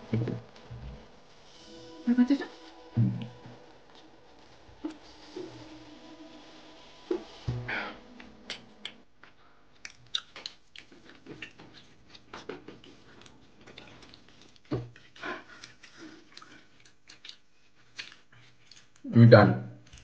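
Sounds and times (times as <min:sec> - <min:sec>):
chewing: 0:09.8 - 0:19.1.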